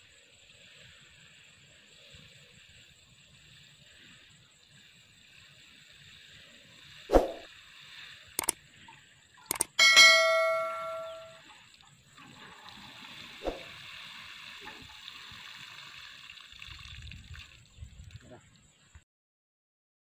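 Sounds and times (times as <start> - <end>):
water sprinkling onto soil: 0.0 - 9.7, 11.4 - 18.6
clicks: 9.5 - 11.3
notification bell ding: 9.5 - 11.4.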